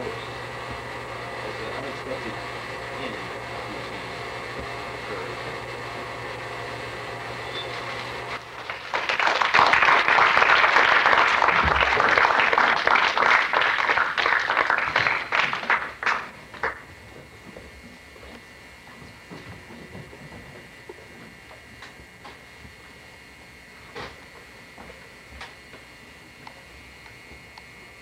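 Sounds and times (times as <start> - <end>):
audience applauding: 8.4 - 16.9.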